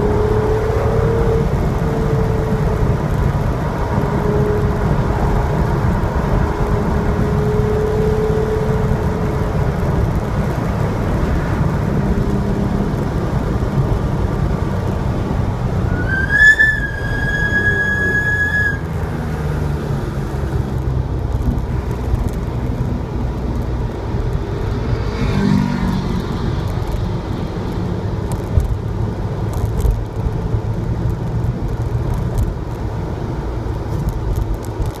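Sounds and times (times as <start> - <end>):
car engine at low revs: 0.0 - 25.3
wind and road noise: 0.0 - 35.0.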